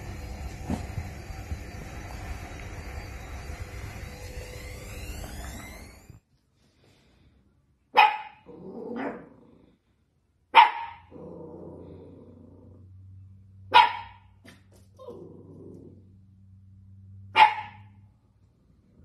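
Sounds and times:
puppy barking: 7.9s - 9.2s, 10.5s - 11.1s, 13.7s - 14.3s, 17.3s - 17.9s
puppy growling: 8.4s - 9.8s, 11.0s - 13.0s, 15.0s - 16.2s.

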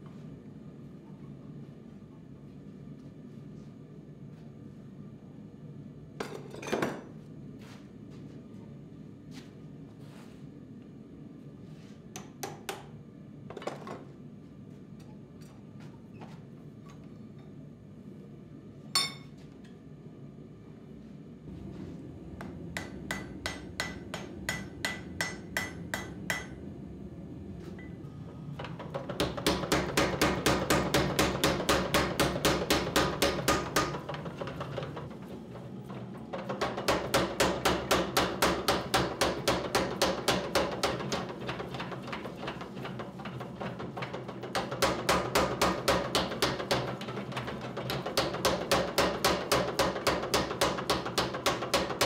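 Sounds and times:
hammer striking steel on anvil: 19.0s - 19.3s, 22.4s - 26.6s, 29.2s - 34.0s, 36.6s - 41.3s
power hammer pounding: 22.4s - 26.6s, 28.6s - 52.0s.

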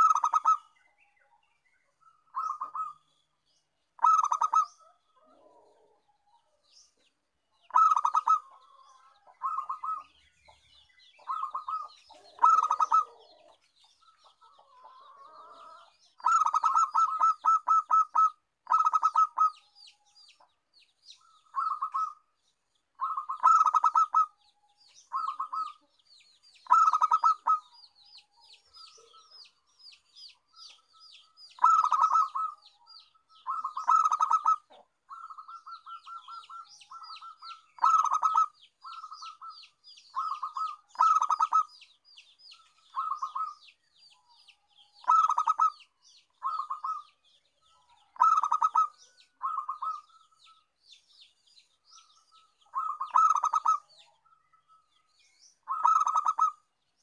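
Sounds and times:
dove cooing: 0.0s - 0.8s, 2.3s - 3.1s, 4.0s - 6.6s, 7.6s - 10.1s, 11.1s - 19.6s, 21.2s - 22.2s, 23.0s - 24.4s, 25.1s - 26.0s, 26.6s - 27.8s, 31.6s - 41.7s, 42.7s - 43.6s, 45.0s - 50.6s, 52.6s - 54.4s, 55.6s - 56.7s.

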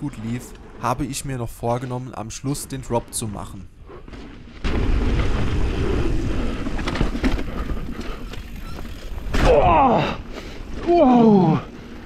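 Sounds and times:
bike tyre rumble: 3.8s - 12.0s
bike rattling: 4.1s - 12.0s.

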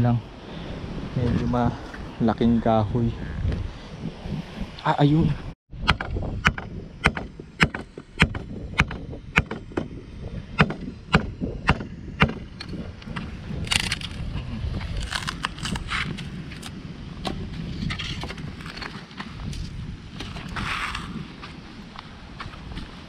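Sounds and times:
twigs snapping and gravel crunching: 14.8s - 16.8s.

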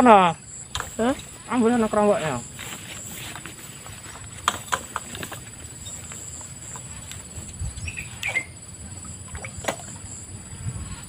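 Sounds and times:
high insect drone: 0.0s - 11.0s
bamboo pole creaking and knocking: 2.4s - 8.5s.

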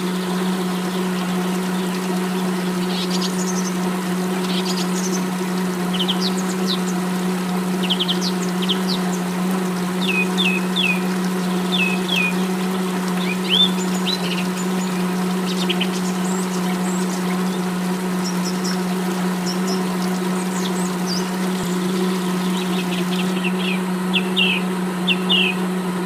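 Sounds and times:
birds chirping: 0.0s - 26.0s
water pump humming: 0.0s - 26.0s
water trickling into pool: 0.0s - 26.0s.

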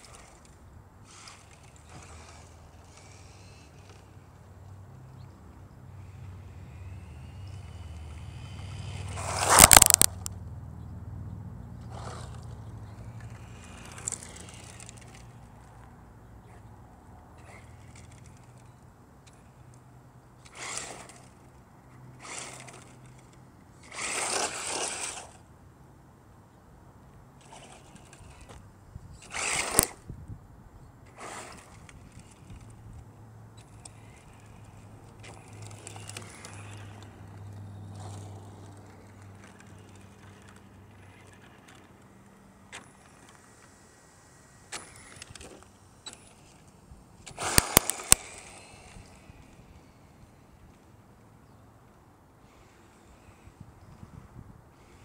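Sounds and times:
toy car motor whine: 0.0s - 4.3s, 6.0s - 10.3s, 11.9s - 15.4s, 20.4s - 25.5s, 27.4s - 28.6s, 29.2s - 30.0s, 31.1s - 32.8s, 33.6s - 50.6s
sharp clicks: 9.2s - 10.4s, 29.2s - 30.0s, 47.2s - 49.5s.

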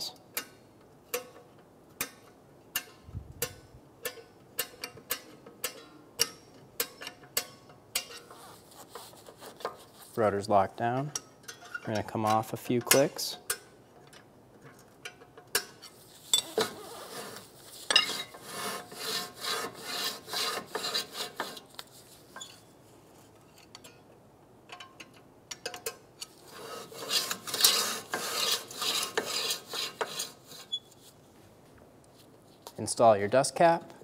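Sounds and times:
metal scraping and clicking: 24.7s - 31.0s.

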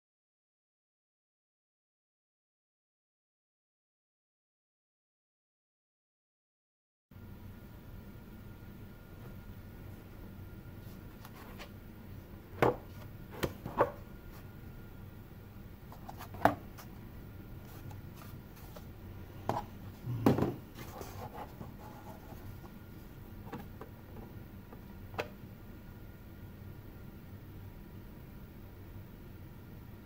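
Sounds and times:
plastic rubbing: 20.6s - 22.7s.

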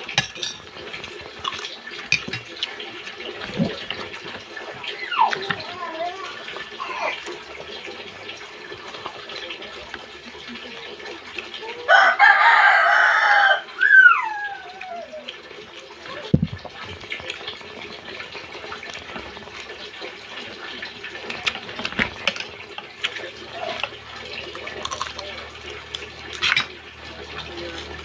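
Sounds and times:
rooster crowing: 11.9s - 14.6s.

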